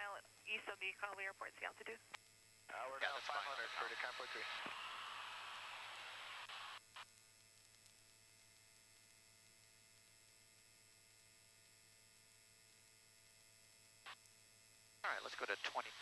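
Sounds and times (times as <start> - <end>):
faint electrical hum: 0.0 - 16.0
radio hiss: 2.7 - 7.0, 15.0 - 16.0.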